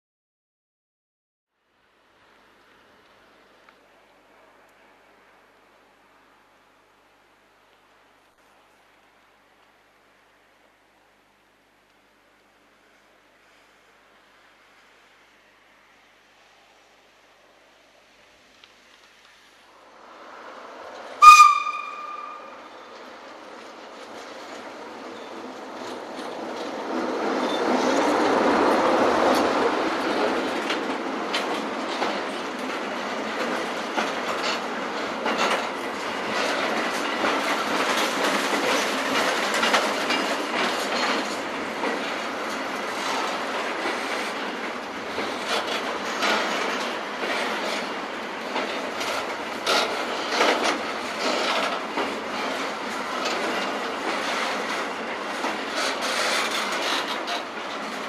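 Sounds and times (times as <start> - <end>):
freight train rolling past: 12.8 - 58.0
wheels clattering over rail joints: 20.4 - 58.0.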